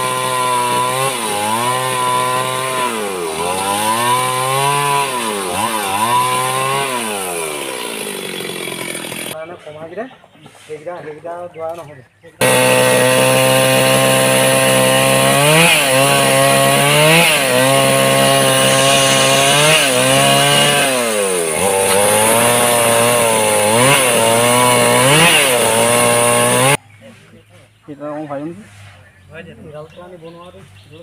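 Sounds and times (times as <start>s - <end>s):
chainsaw cutting log: 0.0s - 9.4s, 12.4s - 26.8s.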